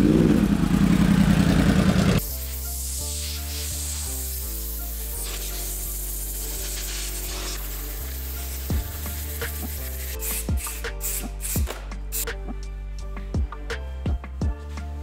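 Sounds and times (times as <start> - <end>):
air blow gun hissing: 2.2 - 12.3
background music: 2.2 - 15.0.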